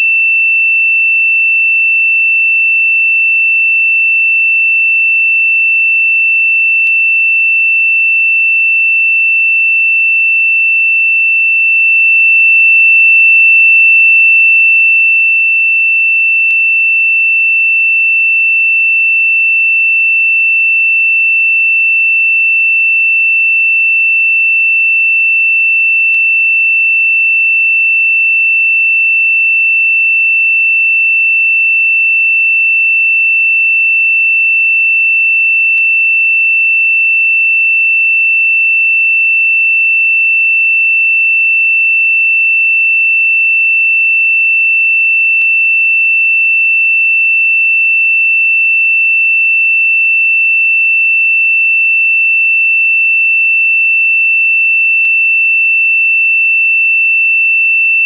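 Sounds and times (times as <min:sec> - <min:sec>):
high-pitched sine tone: 0:00.0 - 0:00.2, 0:57.7 - 0:58.0.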